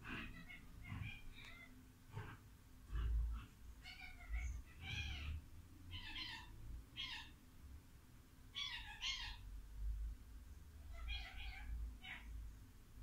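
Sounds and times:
dog yelping: 0:00.0 - 0:01.7.

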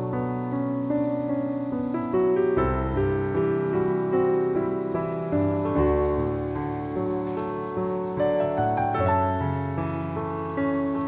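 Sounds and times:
soft instrumental music: 0:00.0 - 0:11.0.

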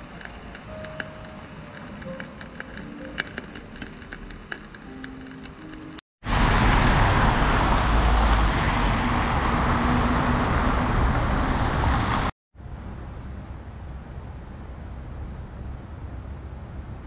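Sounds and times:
tyres on wet road: 0:05.6 - 0:12.3
car engines: 0:06.2 - 0:14.0.

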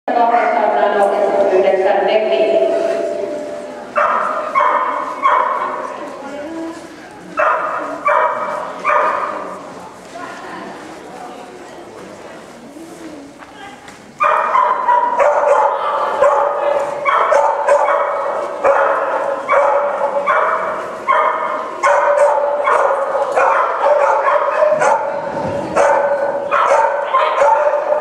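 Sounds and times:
dog barking: 0:03.9 - 0:05.8, 0:07.4 - 0:09.4, 0:14.2 - 0:25.2, 0:25.8 - 0:28.0.

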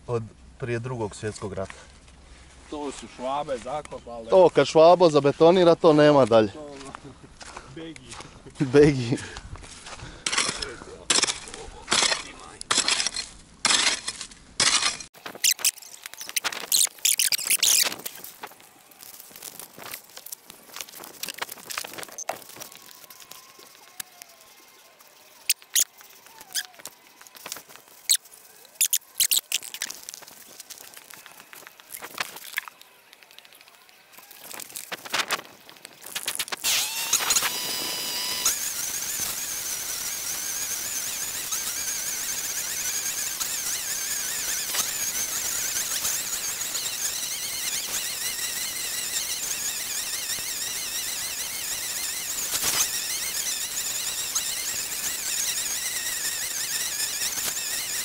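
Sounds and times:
string trimmer motor whining: 0:15.2 - 0:35.3, 0:36.1 - 0:58.0.

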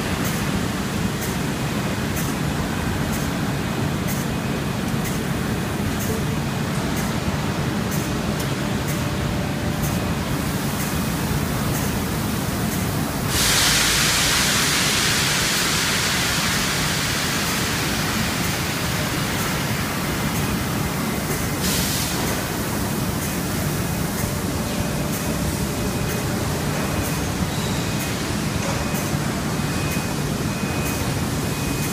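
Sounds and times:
machinery humming: 0:00.0 - 0:31.9
loud hiss: 0:13.2 - 0:20.1, 0:21.6 - 0:22.8.

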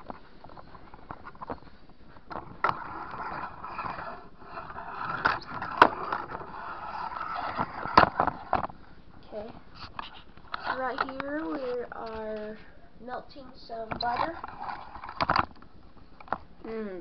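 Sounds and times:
camera handling rubbing: 0:00.0 - 0:08.8, 0:09.8 - 0:12.2.

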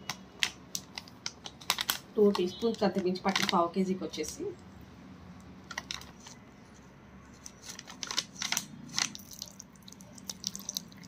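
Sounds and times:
wet squelching of mixing: 0:09.0 - 0:11.0.

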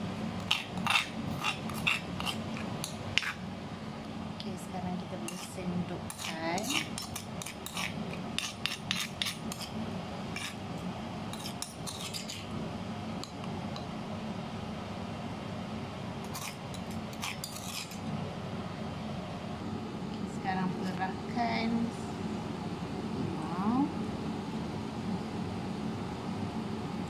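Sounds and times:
steady low hum: 0:00.0 - 0:27.0
metal spoon scraping stone mortar: 0:00.4 - 0:03.4, 0:05.3 - 0:10.6, 0:11.3 - 0:12.5, 0:16.2 - 0:18.0.

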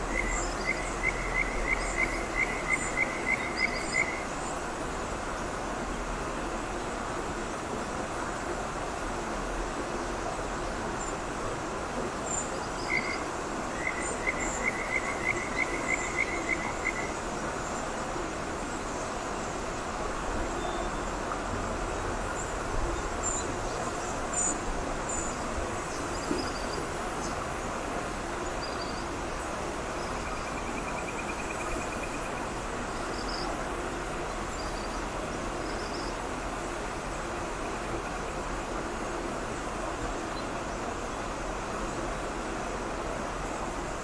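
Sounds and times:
river rushing over stones: 0:00.0 - 0:31.3.

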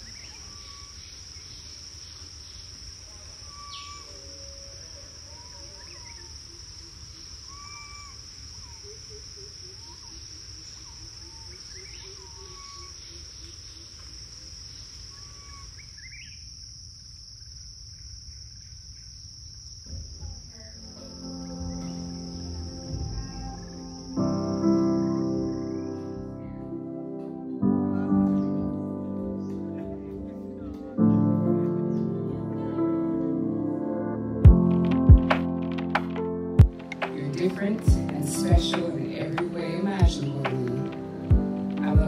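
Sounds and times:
short chirping calls: 0:00.0 - 0:13.9, 0:15.0 - 0:16.4
high-pitched insect trill: 0:00.0 - 0:26.6
music: 0:20.6 - 0:42.0.

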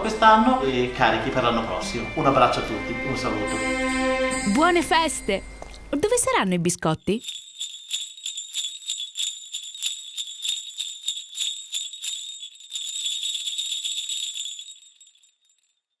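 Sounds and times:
jingle bells shaking: 0:07.0 - 0:15.8.

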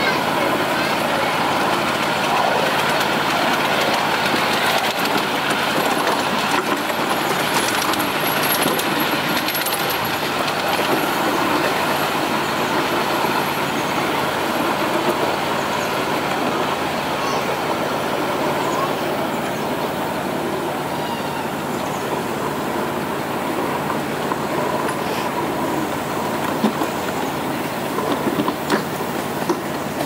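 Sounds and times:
locomotive running: 0:00.0 - 0:30.0
train wheels rolling on rails: 0:00.0 - 0:30.0.

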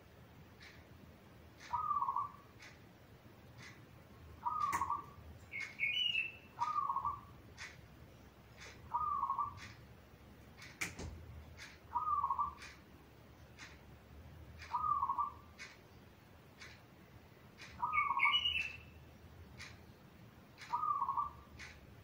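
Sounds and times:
higher bird chirp: 0:01.6 - 0:02.5, 0:04.4 - 0:07.3, 0:08.8 - 0:09.8, 0:11.9 - 0:12.7, 0:14.6 - 0:15.7, 0:17.6 - 0:19.0, 0:20.6 - 0:21.7.

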